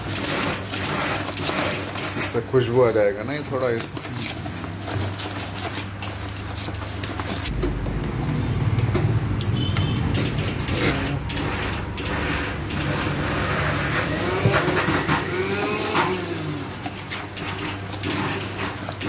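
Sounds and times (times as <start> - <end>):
whisk scraping plastic bowl: 0.0 - 7.8, 10.4 - 19.0.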